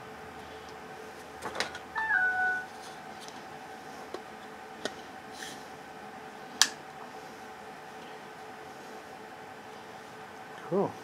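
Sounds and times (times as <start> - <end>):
phone startup chime: 2.0 - 2.7.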